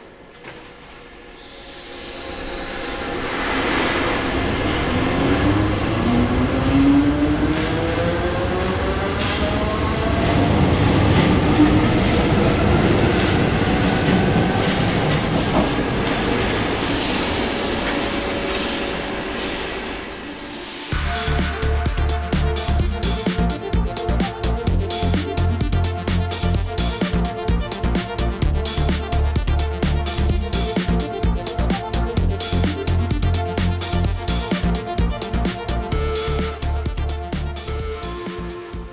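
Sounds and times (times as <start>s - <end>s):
wheel and rail noise: 0.2s - 20.9s.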